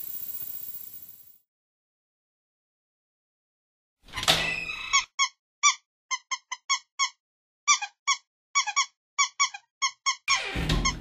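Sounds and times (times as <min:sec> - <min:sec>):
rubber duck squeaking: 0:04.8 - 0:10.4.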